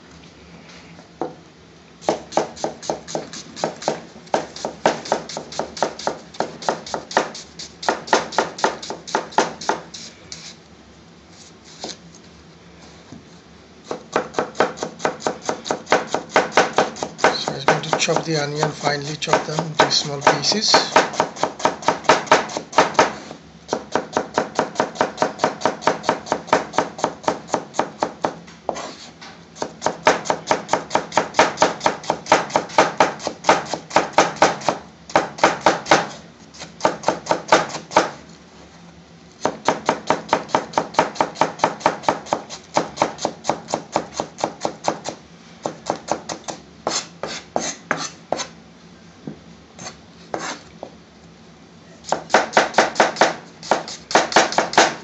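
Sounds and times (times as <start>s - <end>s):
knife chopping on plastic board: 2.0s - 9.8s, 13.9s - 29.0s, 36.8s - 38.2s, 52.1s - 55.0s.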